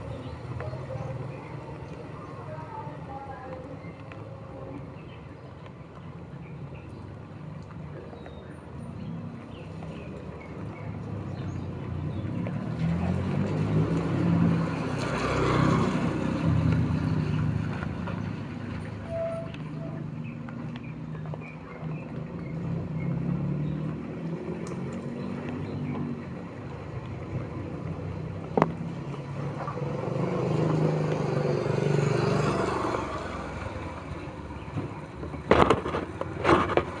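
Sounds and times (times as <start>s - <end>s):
engine humming: 0.0s - 37.0s
vehicle passing: 9.6s - 37.0s.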